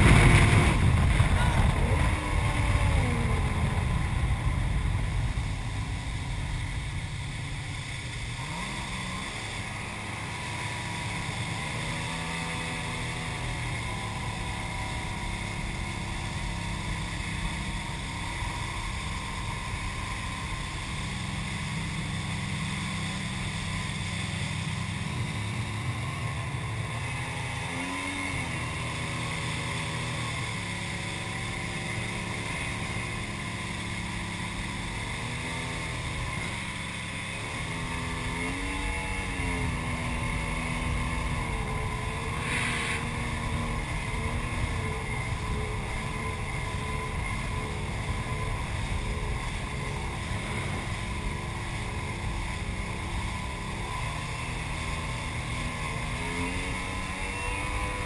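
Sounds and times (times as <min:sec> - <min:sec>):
wind noise: 0:00.0 - 0:21.8
jet ski engine: 0:00.0 - 0:58.0.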